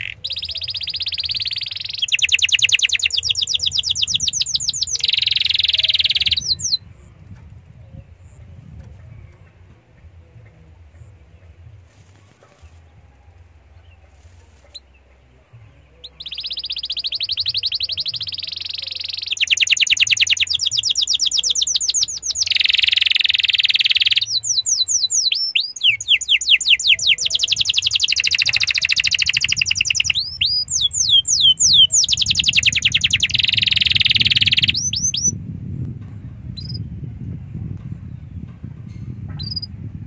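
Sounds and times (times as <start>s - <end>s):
canary singing trills: 0.0s - 35.4s, 36.6s - 36.9s, 39.4s - 39.8s
low rumble: 6.4s - 18.5s, 34.7s - 40.0s.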